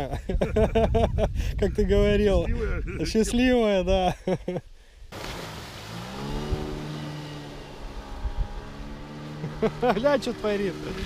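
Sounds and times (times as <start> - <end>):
outboard motor at high revs: 5.2 - 11.0.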